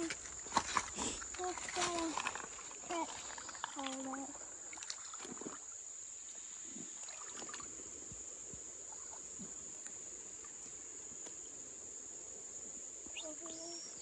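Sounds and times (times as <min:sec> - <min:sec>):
splashing of wading in water: 0:00.0 - 0:05.8, 0:06.9 - 0:07.8
high-pitched insect chorus: 0:00.0 - 0:14.0.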